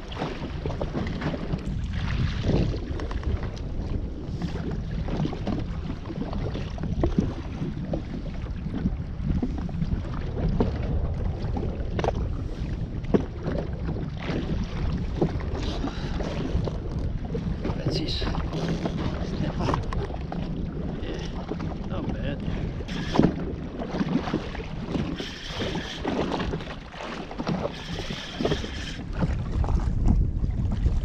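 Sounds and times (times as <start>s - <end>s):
water slapping against hull: 0.0s - 31.0s
wind buffeting microphone: 0.0s - 31.0s.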